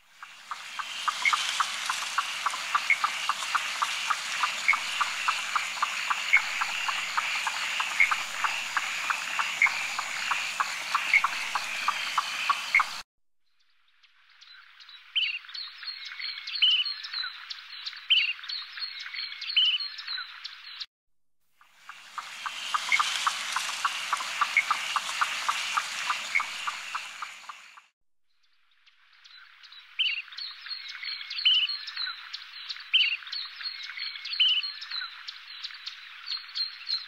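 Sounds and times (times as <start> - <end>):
rapid repeated animal calls: 0.2 - 13.0, 21.6 - 27.9.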